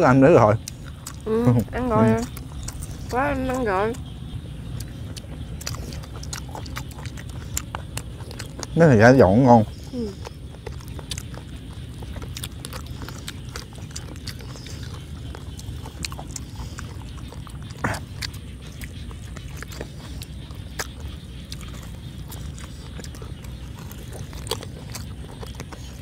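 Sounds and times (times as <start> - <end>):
chewing and lip-smacking: 0.0 - 26.0
low rumble: 0.6 - 8.8.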